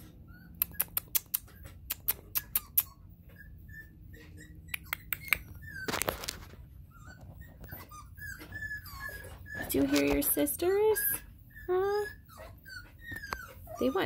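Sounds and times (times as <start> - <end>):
puppies whimpering: 0.0 - 14.0
sharp clicks: 0.6 - 2.9.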